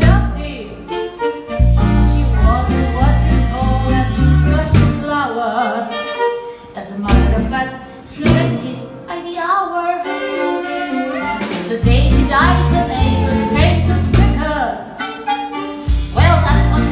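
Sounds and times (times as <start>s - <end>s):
show tune with singing and strings: 0.0s - 16.9s.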